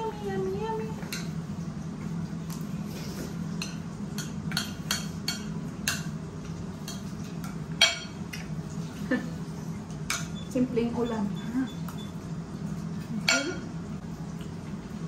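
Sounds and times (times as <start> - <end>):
forks clinking on plates: 7.8 - 8.2, 13.2 - 13.7.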